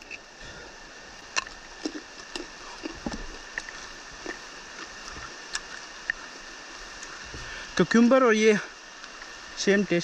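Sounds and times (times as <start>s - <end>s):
rain hissing: 0.0s - 10.0s
cucumber crunching being chewed: 1.3s - 6.2s.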